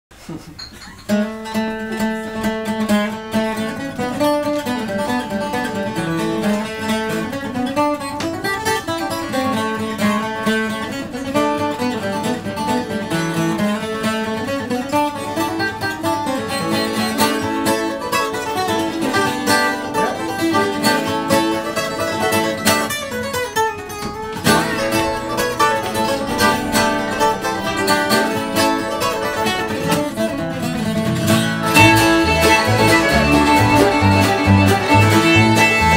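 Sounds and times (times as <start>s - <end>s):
plucked acoustic guitar: 0.2s - 35.9s
upright bass: 24.3s - 35.9s.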